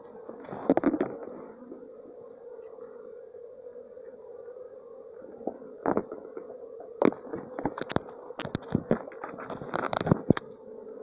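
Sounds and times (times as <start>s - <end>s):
honeybee swarm humming: 0.0s - 11.0s
dry leaves and twigs crackling: 7.0s - 10.5s.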